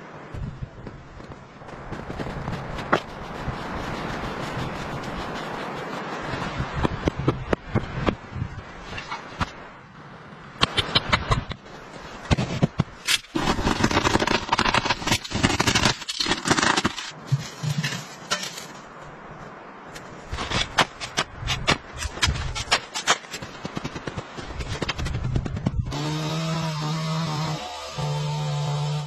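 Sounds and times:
shovel scraping snow: 2.1s - 6.6s, 12.4s - 18.7s
tool chopping frozen earth: 12.3s - 17.2s.

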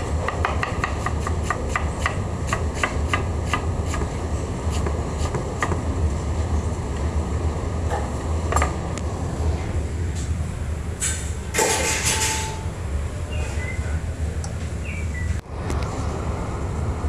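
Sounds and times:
ventilation machinery rumble: 0.0s - 17.0s.

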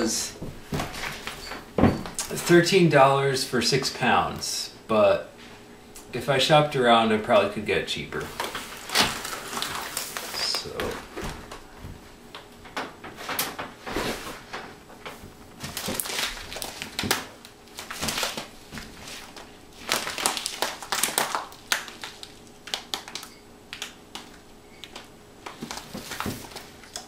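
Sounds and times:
plastic bag crinkling: 8.2s - 11.6s, 15.5s - 27.0s.

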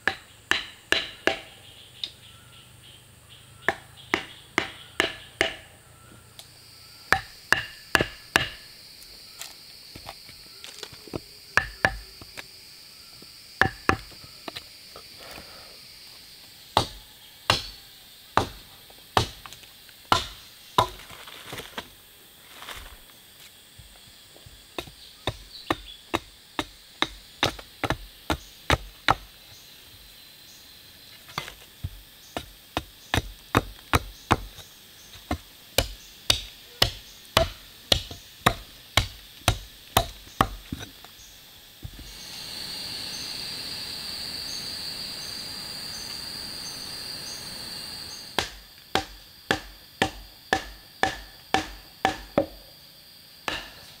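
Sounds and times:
wood chopping strikes: 0.0s - 1.5s, 3.7s - 5.7s, 7.1s - 8.6s, 11.1s - 12.1s, 13.6s - 14.2s, 16.8s - 17.8s, 18.4s - 18.6s, 19.2s - 21.2s, 24.8s - 29.3s, 31.3s - 41.1s, 48.3s - 52.6s, 53.5s - 53.8s.

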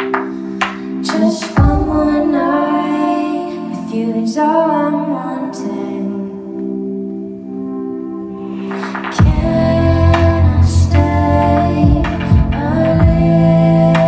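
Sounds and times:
keyboard chords: 0.0s - 14.0s
women singing: 1.0s - 6.4s, 9.1s - 14.0s.

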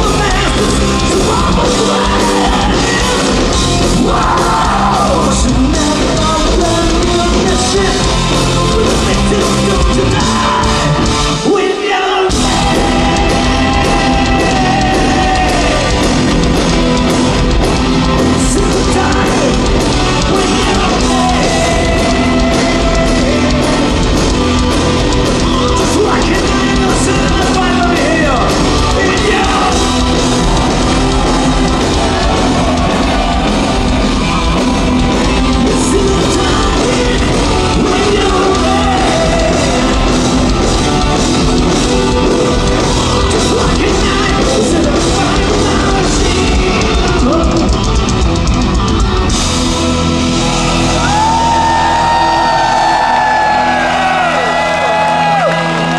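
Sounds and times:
heavy metal band playing live: 0.0s - 55.9s.

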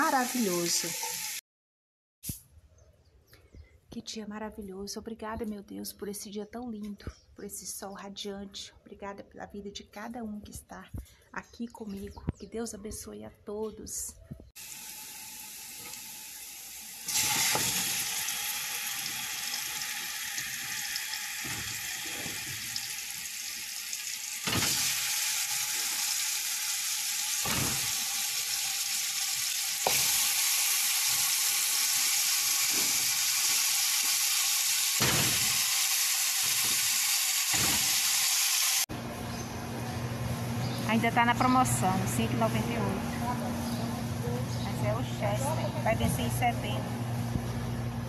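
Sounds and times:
meat sizzling in hot fat: 0.0s - 1.4s, 14.6s - 38.9s.

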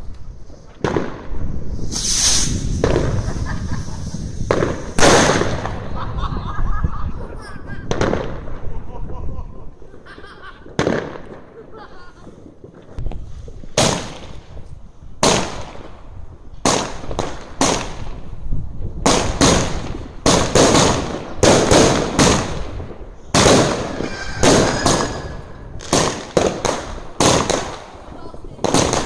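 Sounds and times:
fireworks exploding: 0.0s - 29.0s.

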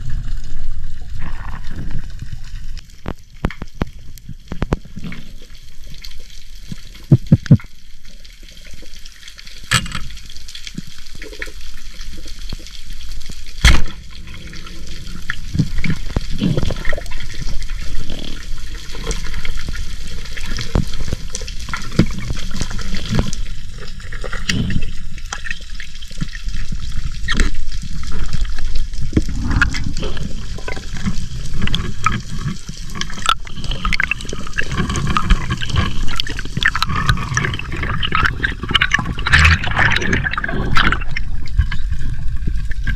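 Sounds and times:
water sloshing and gurgling: 0.0s - 42.9s
sharp clicks and knocks: 9.7s - 10.2s.

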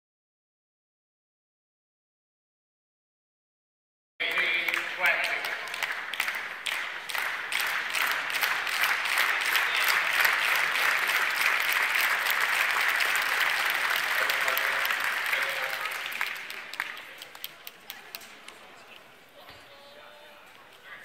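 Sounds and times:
audience applauding: 4.2s - 18.2s.

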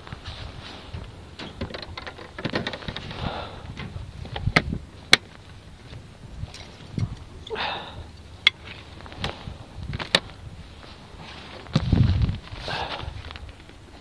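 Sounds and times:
rustling: 0.0s - 7.6s, 8.2s - 14.0s
handling clicks and knocks: 1.3s - 3.1s, 6.4s - 7.6s, 8.2s - 10.4s.

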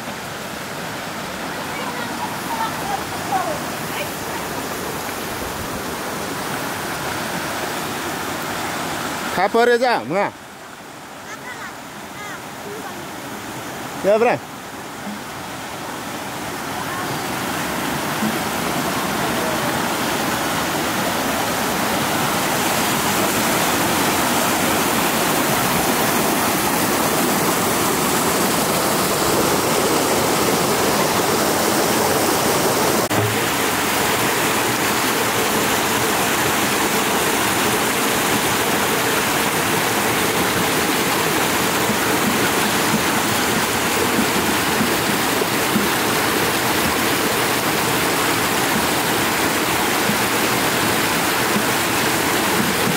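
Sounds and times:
stream rushing over stones: 0.0s - 52.9s.

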